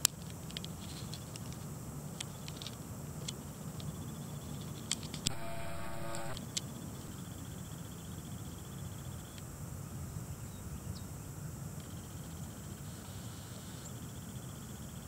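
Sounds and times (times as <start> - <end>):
high rapidly pulsing trill: 5.3 - 6.4.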